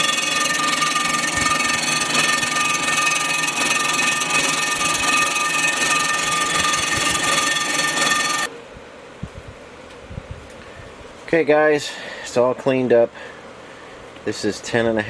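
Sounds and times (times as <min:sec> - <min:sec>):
surfacing machine whining: 0:00.0 - 0:08.5.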